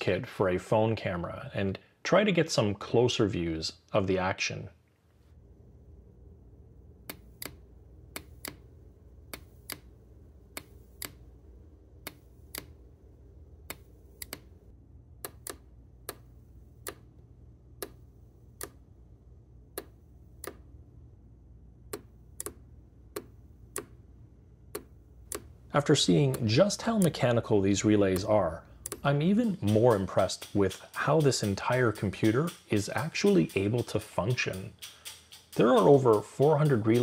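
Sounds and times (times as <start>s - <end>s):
faint low background hum: 0.0s - 37.0s
relay clicking: 24.7s - 37.0s.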